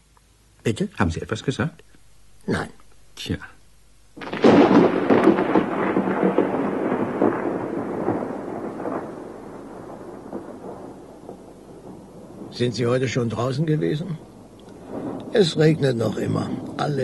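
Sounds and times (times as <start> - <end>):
thunder rumbling: 4.2 - 17.0.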